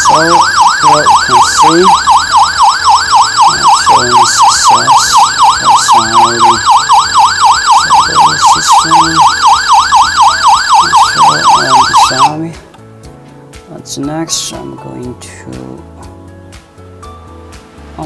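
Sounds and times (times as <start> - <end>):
alarm siren warbling: 0.0 - 12.4.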